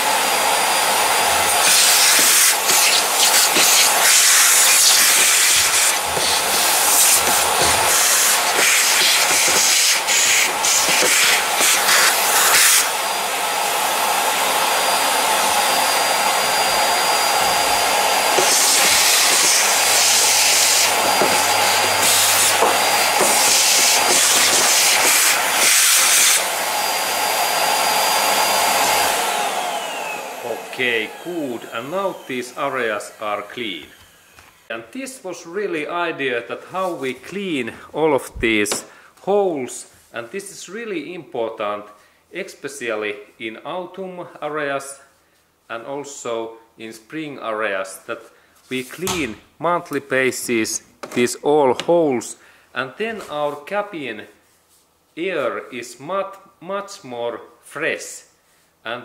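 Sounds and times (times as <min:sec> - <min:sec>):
vacuum cleaner sucking debris: 0:00.0 - 0:34.7.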